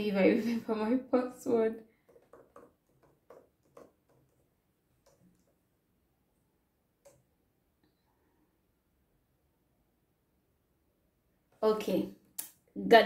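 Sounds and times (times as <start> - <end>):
laptop keyboard taps: 2.0 - 5.6.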